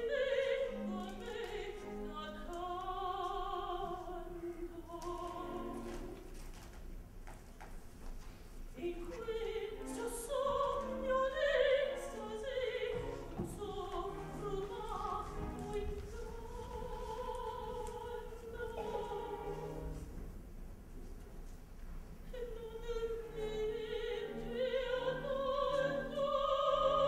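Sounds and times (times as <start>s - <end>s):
soprano singing opera: 0.0s - 6.2s, 8.8s - 20.0s, 22.2s - 27.0s
orchestra playing: 9.5s - 17.1s, 18.8s - 20.2s.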